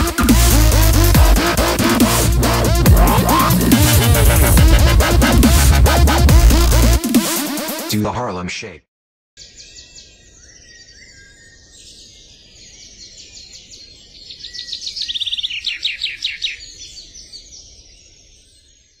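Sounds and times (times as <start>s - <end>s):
birds chirping and trilling: 9.4s - 19.0s.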